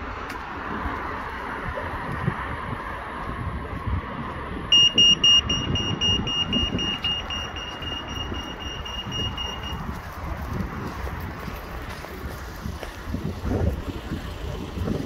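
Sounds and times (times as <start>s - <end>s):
passing traffic: 0.0s - 15.0s
wind: 0.0s - 15.0s
crossing signal beeping: 4.7s - 10.0s.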